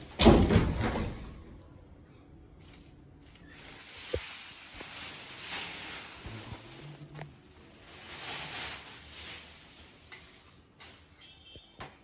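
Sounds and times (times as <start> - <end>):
plastic sheeting rustling: 2.6 - 11.6.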